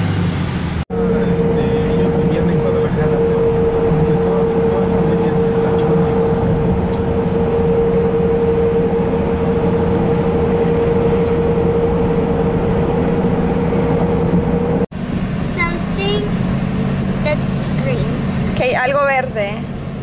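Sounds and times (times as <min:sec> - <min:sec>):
constant hum: 0:00.0 - 0:20.0.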